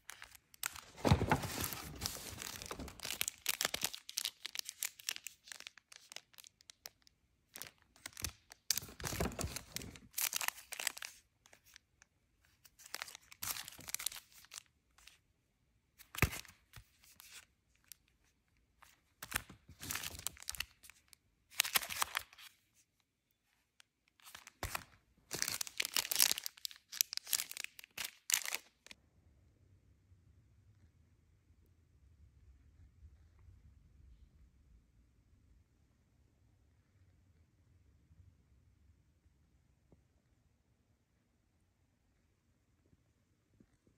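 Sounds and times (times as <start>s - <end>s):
plastic packaging crinkling and tearing: 0.0s - 11.8s, 12.7s - 15.2s, 19.2s - 22.5s, 24.2s - 29.0s.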